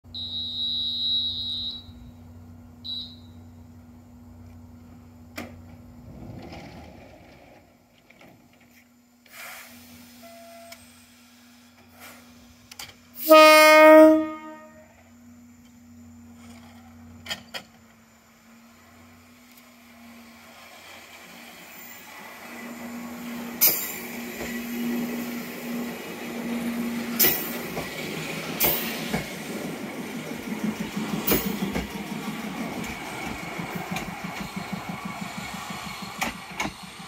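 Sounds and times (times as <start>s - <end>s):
short high beep: 0.1s - 2.1s, 10.2s - 10.8s
train horn blast: 13.2s - 15.0s.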